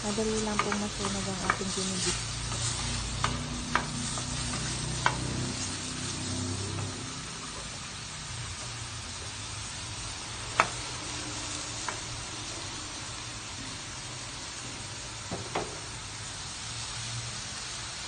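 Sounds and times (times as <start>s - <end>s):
vegetables sizzling in pan: 0.0s - 18.0s
wooden spatula knocking pan: 0.2s - 5.4s, 15.3s - 15.9s.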